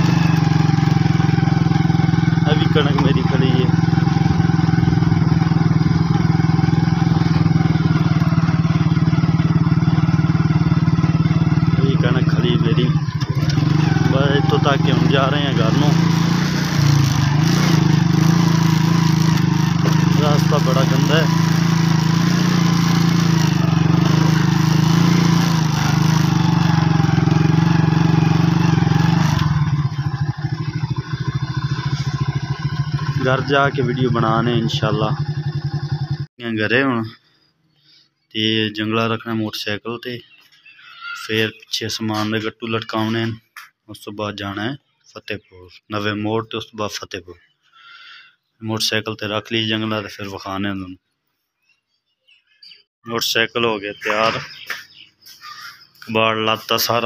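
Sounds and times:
small motorcycle engine running: 0:00.0 - 0:36.3.

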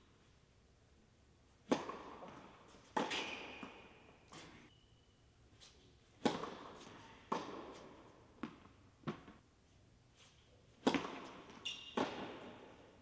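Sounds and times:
tennis ball bouncing on court: 0:01.6 - 0:04.5, 0:06.2 - 0:09.4, 0:10.8 - 0:12.8
racket striking ball: 0:01.7 - 0:04.5, 0:06.2 - 0:09.4, 0:10.8 - 0:12.8
shoe squeak: 0:11.6 - 0:12.1.

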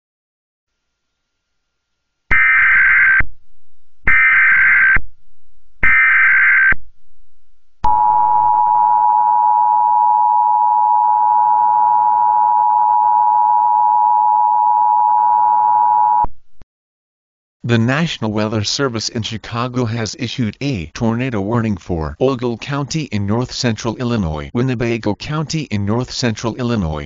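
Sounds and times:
two-tone alert signal: 0:07.9 - 0:13.5.

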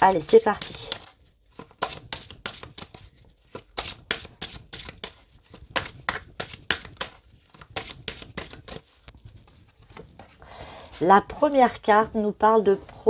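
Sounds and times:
cards being shuffled: 0:00.1 - 0:10.4.

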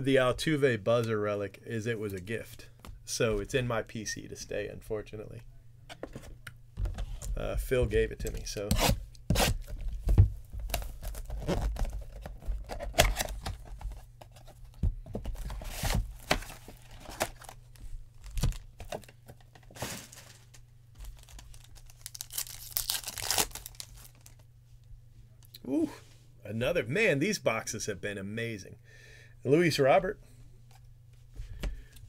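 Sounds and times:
plastic wrapping tearing and crinkling: 0:10.7 - 0:12.2, 0:19.8 - 0:24.4
long tearing rip: 0:22.1 - 0:23.9.

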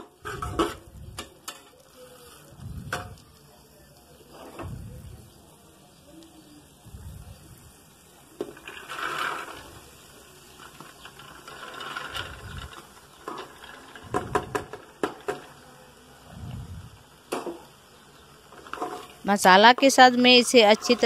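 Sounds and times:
lentils pouring into a pot: 0:07.4 - 0:14.2.

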